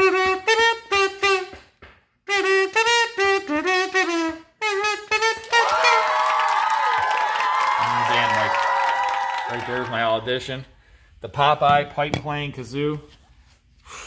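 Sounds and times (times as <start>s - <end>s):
kazoo playing a tune: 0.0s - 1.7s, 2.3s - 6.3s
music: 0.0s - 1.7s, 2.3s - 6.0s.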